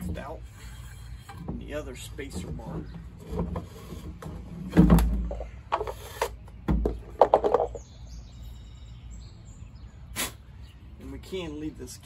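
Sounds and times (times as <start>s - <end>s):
metal axle knocks and clatters: 0.0s - 6.0s.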